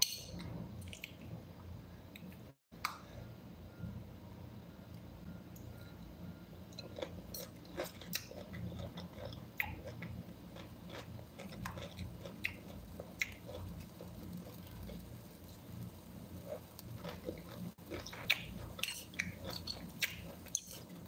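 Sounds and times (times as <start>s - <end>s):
chewing food: 6.8s - 15.6s, 16.4s - 21.0s.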